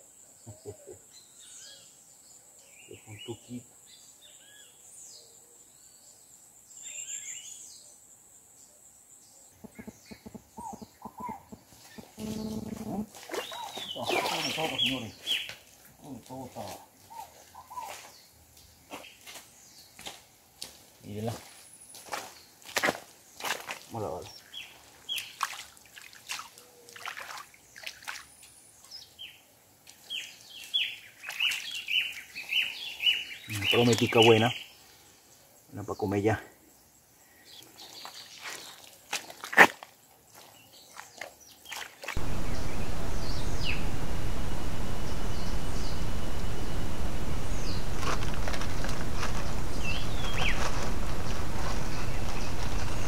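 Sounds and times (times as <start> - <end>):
birds chirping: 9.6 - 18.3, 30.1 - 35.0, 40.6 - 53.0
water sloshing and splashing: 25.2 - 28.3, 38.0 - 42.2
high insect-like whine: 42.2 - 53.0
loud full noise: 42.2 - 53.0
rapid short lower calls: 42.2 - 53.0.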